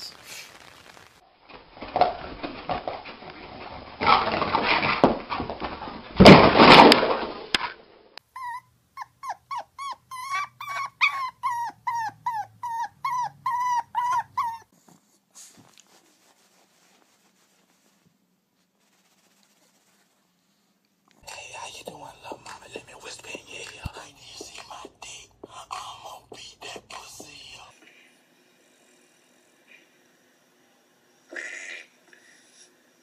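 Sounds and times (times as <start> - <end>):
dog yipping: 8.3 - 14.7.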